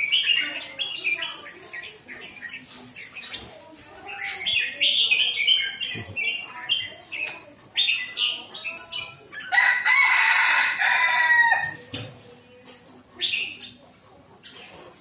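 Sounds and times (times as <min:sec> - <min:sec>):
birds chirping: 0:00.0 - 0:15.0
rooster crowing: 0:09.5 - 0:11.8.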